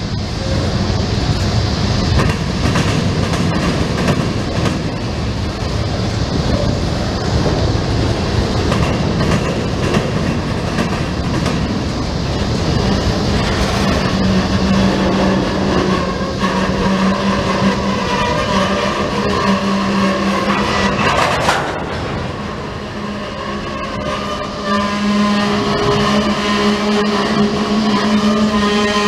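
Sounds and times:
freight train wheels rumbling: 0.0s - 29.0s
wheels clicking over rail joints: 8.5s - 11.8s, 20.2s - 22.3s.

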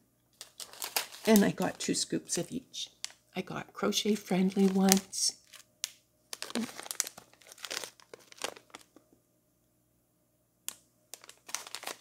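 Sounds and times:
foil pouch crinkling: 0.4s - 3.2s, 4.0s - 5.7s, 6.3s - 9.0s, 11.1s - 12.0s.

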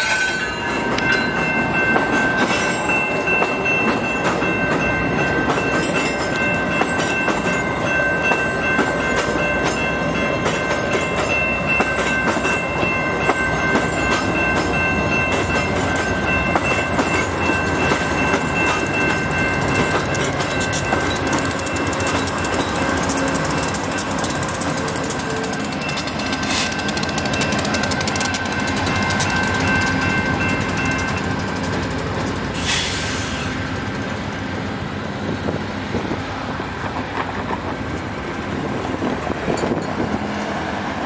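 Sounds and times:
train wheels clattering over rail joints: 0.0s - 34.2s, 35.4s - 40.7s.

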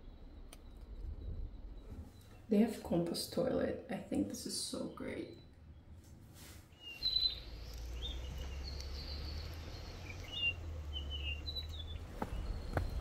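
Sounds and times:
steady low rumble: 0.0s - 3.2s
birds chirping: 0.0s - 13.0s.

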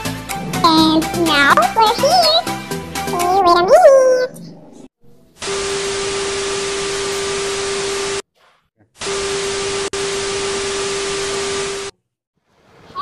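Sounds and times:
television static hiss: 9.4s - 11.9s.

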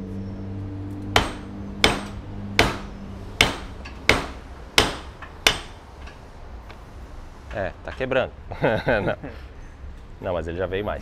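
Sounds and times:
hammer blows on metal: 1.1s - 6.2s.

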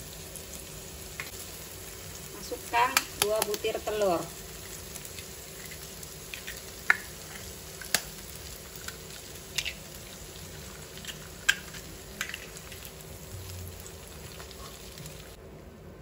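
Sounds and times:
eggs frying in oil: 0.0s - 15.4s
eggshells cracking: 4.6s - 13.1s.

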